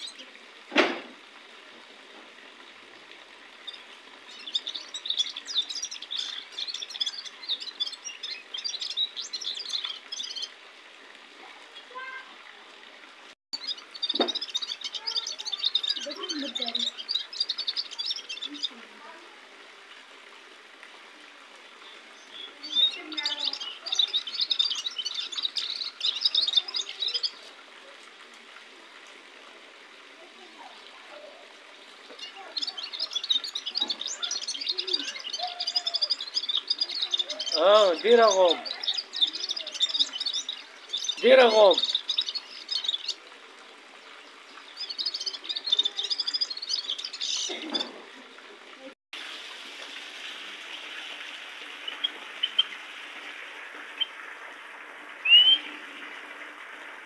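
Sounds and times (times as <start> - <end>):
goldfinch twittering chirps and trills: 3.6 - 10.6, 13.6 - 18.9, 21.8 - 27.5, 32.0 - 43.2, 43.9 - 48.0, 51.8 - 52.8, 55.2 - 55.7.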